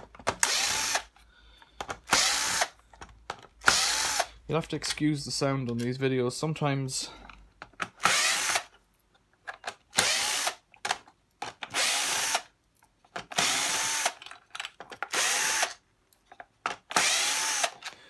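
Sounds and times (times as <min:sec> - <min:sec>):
cordless drill whining: 0:00.4 - 0:01.1, 0:02.1 - 0:02.8, 0:03.6 - 0:04.3, 0:08.0 - 0:08.7, 0:09.9 - 0:10.6, 0:11.7 - 0:12.5, 0:13.3 - 0:14.2, 0:15.1 - 0:15.8, 0:16.9 - 0:18.0.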